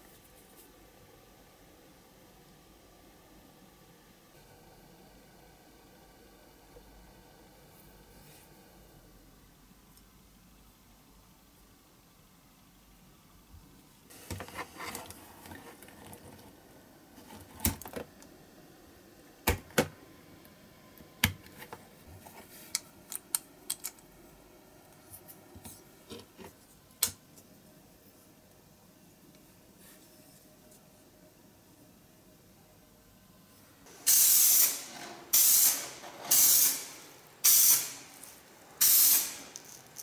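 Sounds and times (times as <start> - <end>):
small parts clicking and tapping: 22.7 - 24.1.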